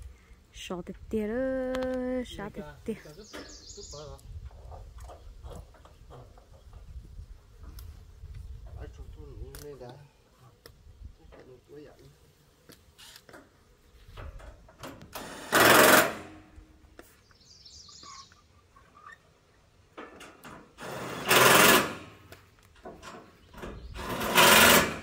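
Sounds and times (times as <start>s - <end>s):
power drill driving screws into metal: 14.8s - 16.5s, 20.1s - 22.4s, 23.0s - 25.0s.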